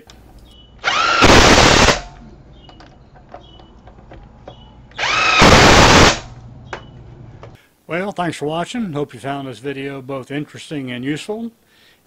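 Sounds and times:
impact driver whine and hammering: 0.8s - 2.1s, 4.5s - 6.3s.

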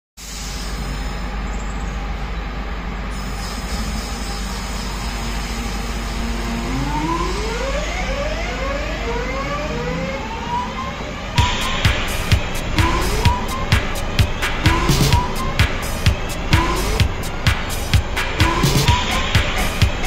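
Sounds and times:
electric train hum: 0.2s - 20.0s
traction motors whining: 0.6s - 20.0s.

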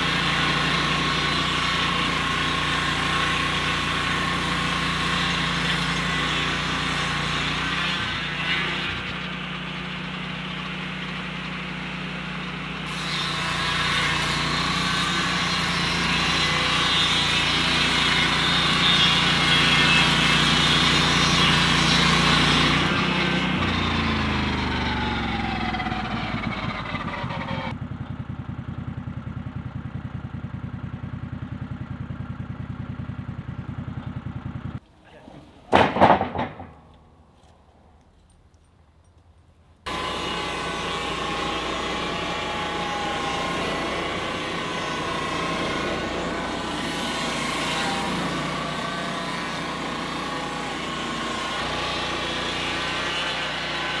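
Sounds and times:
sawmill engine and blade: 0.0s - 38.4s, 39.8s - 54.0s.

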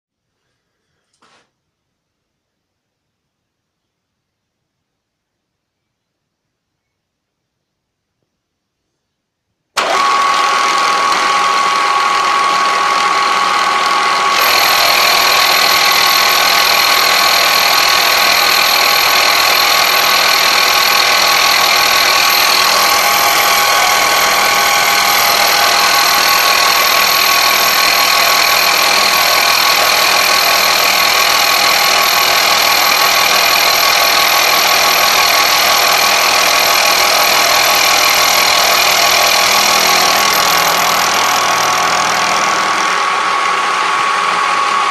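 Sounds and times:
milling machine cutting metal: 9.8s - 44.9s.

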